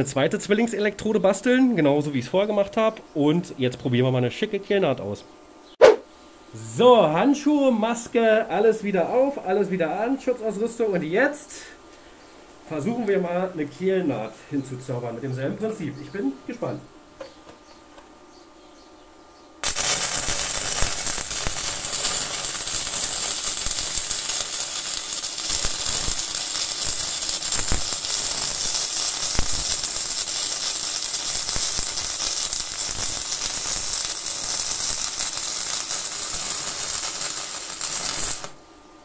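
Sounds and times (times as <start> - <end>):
welding arc crackling and popping: 19.6 - 38.6.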